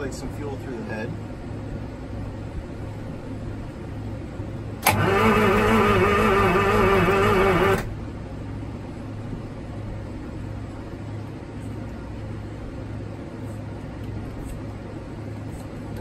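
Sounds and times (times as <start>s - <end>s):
steady low hum: 0.0s - 16.0s
engine starter cranking whine: 4.8s - 8.0s.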